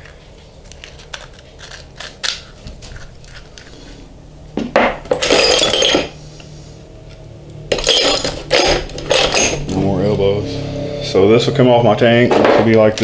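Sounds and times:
metal pipe fittings clinking: 7.7s - 9.8s.

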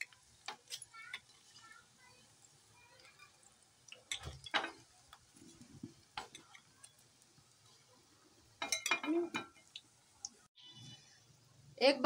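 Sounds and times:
oil sizzling: 0.0s - 11.8s
metal spoon clinking on pan: 8.6s - 9.7s.

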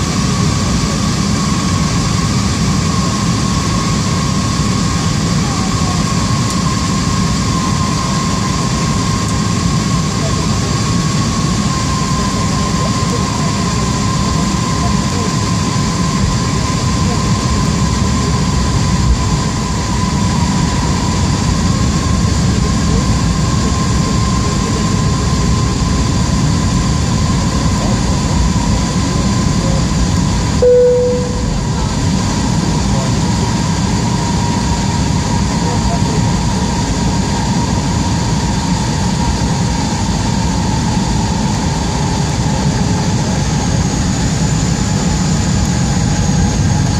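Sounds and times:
airliner cabin rumble: 0.4s - 46.9s
thin steady whine: 30.6s - 33.1s.

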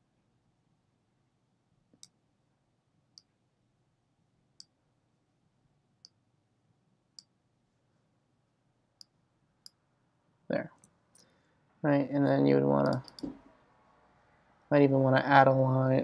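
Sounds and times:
computer mouse clicks: 12.8s - 13.4s.

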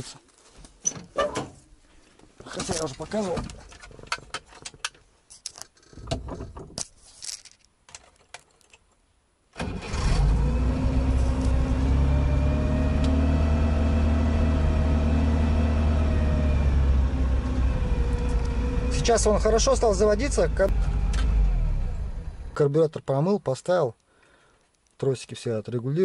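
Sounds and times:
car engine starting and idling: 9.6s - 22.6s.

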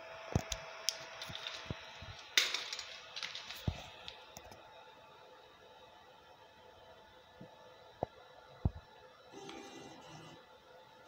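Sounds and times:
faint hum: 0.0s - 11.0s
stepper motors whining: 9.4s - 10.4s.

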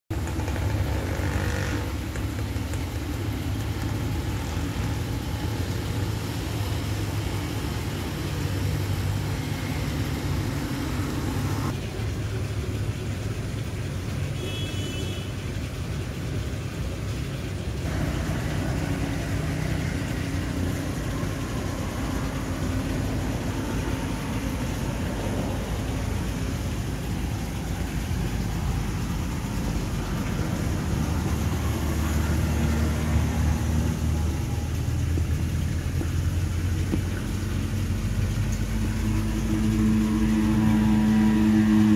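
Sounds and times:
low machine hum: 15.9s - 41.9s.

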